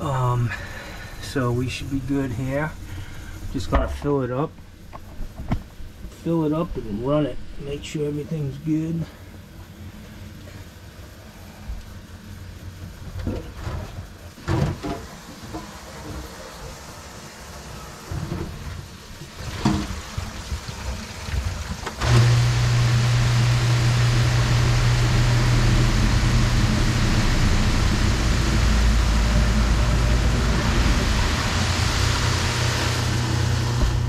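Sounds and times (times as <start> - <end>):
garbage disposal motor hum: 0.0 - 34.0
water rushing down drain: 15.1 - 34.0.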